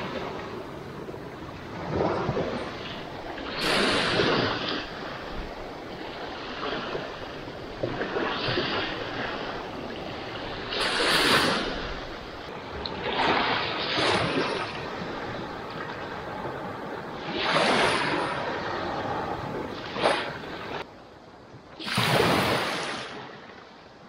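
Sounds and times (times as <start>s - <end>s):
small waves washing on sand: 0.0s - 20.9s, 21.8s - 23.6s
steady surf hiss: 8.9s - 12.7s.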